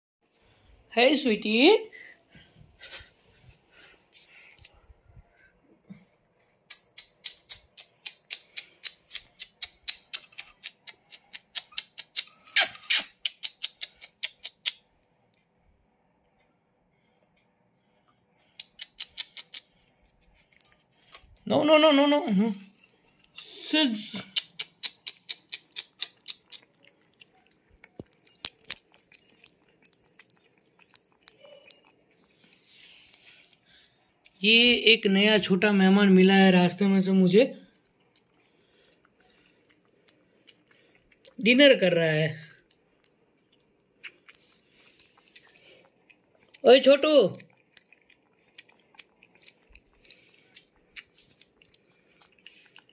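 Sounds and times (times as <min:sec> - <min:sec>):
puppy squeaking cries: 0:11.6 - 0:13.2
puppy lapping and chewing: 0:18.4 - 0:21.4, 0:24.2 - 0:34.3, 0:37.6 - 0:41.4, 0:42.6 - 0:52.9.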